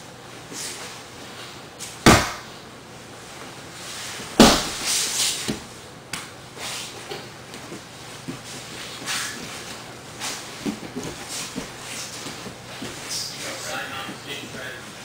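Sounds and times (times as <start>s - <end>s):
bodies thudding on a padded mat: 2.0s - 2.5s, 4.2s - 5.6s
clothing scuffling and rustling: 6.6s - 15.0s.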